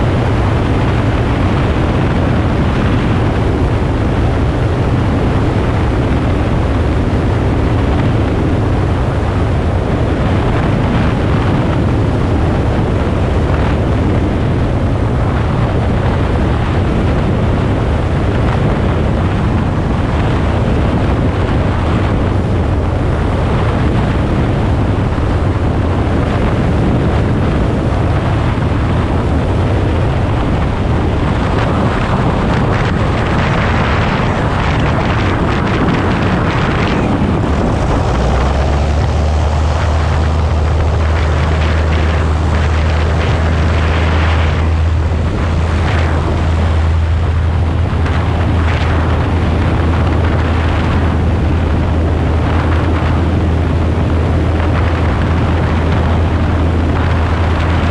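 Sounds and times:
airplane engine droning: 0.0 - 57.9
wind rushing over microphone: 0.0 - 57.9.

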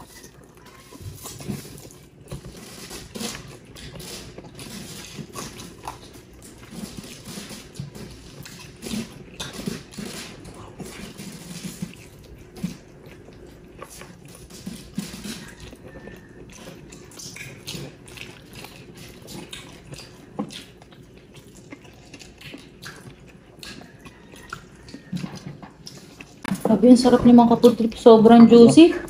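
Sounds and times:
wet chewing: 0.0 - 29.0
lip smacks: 13.8 - 26.6.

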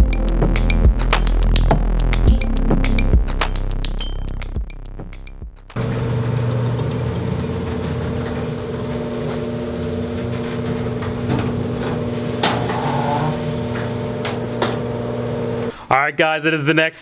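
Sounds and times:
motor humming: 5.8 - 15.7.

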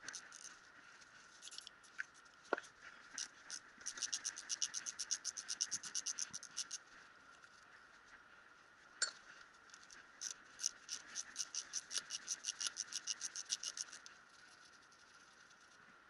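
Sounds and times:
ratchet wrench clicking: 3.2 - 6.8, 10.2 - 14.1.

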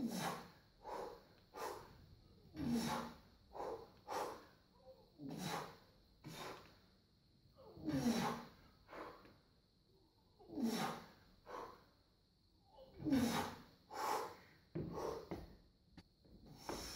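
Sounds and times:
man breathing noisily: 0.0 - 6.9, 7.8 - 9.4, 10.5 - 12.0, 13.0 - 15.5, 16.4 - 16.9
man grunting: 7.7 - 8.5.

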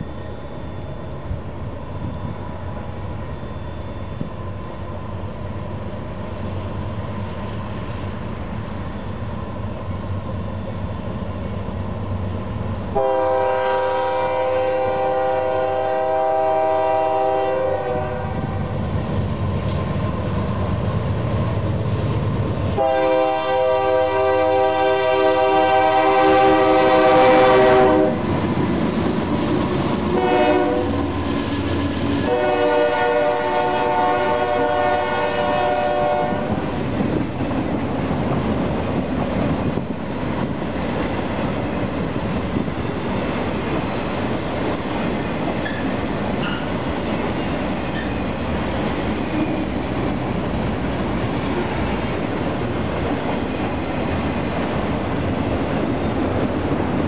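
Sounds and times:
train cars rumbling on rails: 0.0 - 57.0
locomotive air horn: 12.9 - 18.7, 22.8 - 28.2, 30.1 - 31.0, 32.2 - 36.7.

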